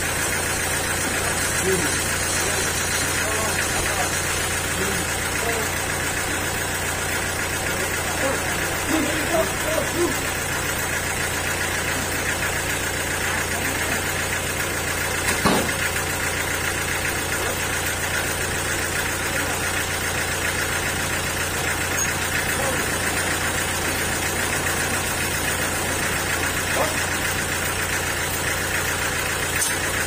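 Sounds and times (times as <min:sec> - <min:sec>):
sawmill drone: 0:00.0 - 0:30.0
short knock: 0:15.3 - 0:15.8.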